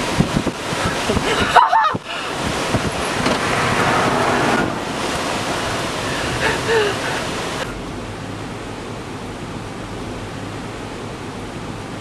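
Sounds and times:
storm wind rushing over microphone: 0:00.0 - 0:07.9
low steady hum: 0:00.0 - 0:12.0.

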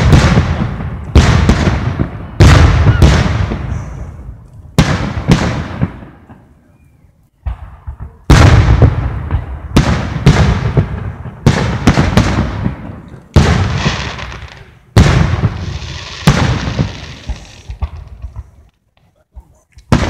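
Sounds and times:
firework shells booming: 0:00.0 - 0:06.6, 0:07.4 - 0:18.7, 0:19.4 - 0:20.0
small firework pops: 0:16.2 - 0:20.0.

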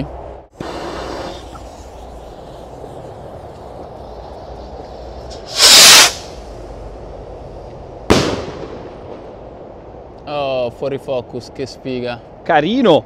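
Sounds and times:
rocket rushing hiss: 0:00.5 - 0:07.0, 0:08.1 - 0:09.4
firework bang with echo: 0:08.1 - 0:09.3.

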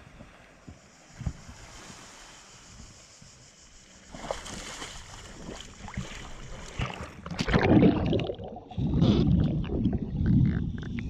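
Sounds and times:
water splashing and gurgling: 0:03.7 - 0:11.0.

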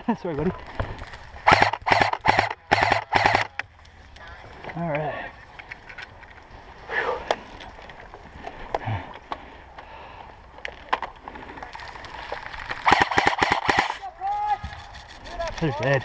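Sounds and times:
airsoft rifle firing burst: 0:01.4 - 0:03.6, 0:12.8 - 0:14.0
sharp clicks: 0:01.5 - 0:04.3.

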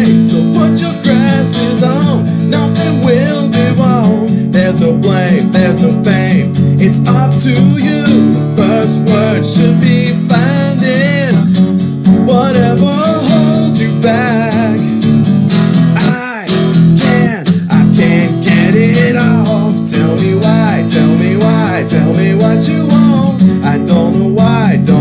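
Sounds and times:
person singing: 0:00.0 - 0:15.0, 0:15.8 - 0:25.0
strummed acoustic guitar: 0:00.0 - 0:25.0.

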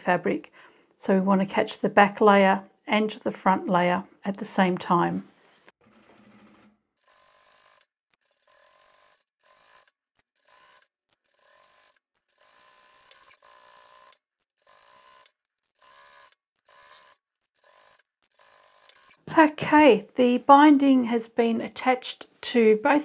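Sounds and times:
faint sewing machine stitching: 0:05.8 - 0:19.5.

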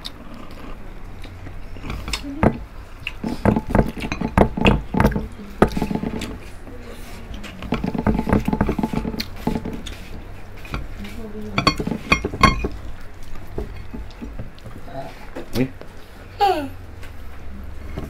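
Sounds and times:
chewing and crunching fried food: 0:00.0 - 0:16.3.

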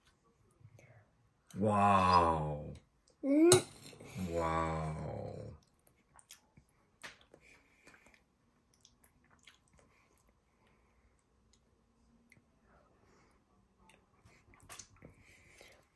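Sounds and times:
soft chewing: 0:05.5 - 0:15.9.

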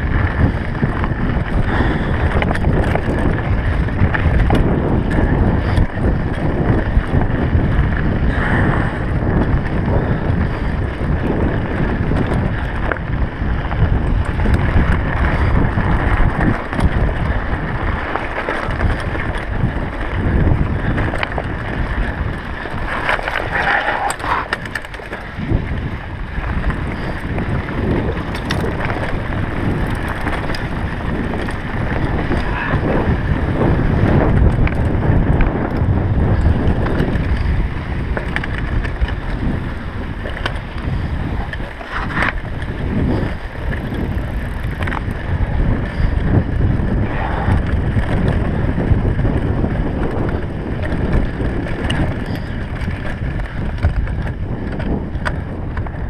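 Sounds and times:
bike rattling and clicking: 0:00.0 - 0:56.0
wind buffeting microphone: 0:00.0 - 0:56.0
tyres crunching on gravel: 0:14.4 - 0:34.3.

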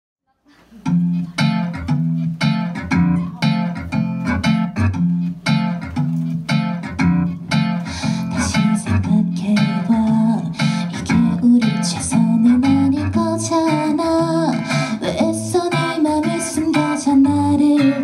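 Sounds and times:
acoustic guitar strumming: 0:00.8 - 0:18.0.

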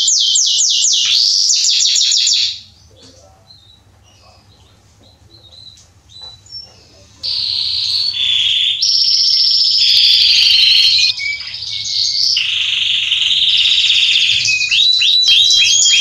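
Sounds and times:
canary singing: 0:00.0 - 0:16.0.

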